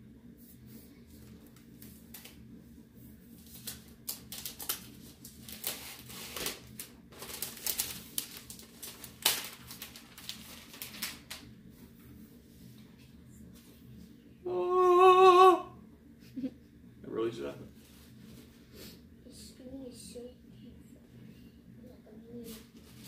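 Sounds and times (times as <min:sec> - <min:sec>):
protective wrapping sheet crinkling: 0:03.4 - 0:11.5.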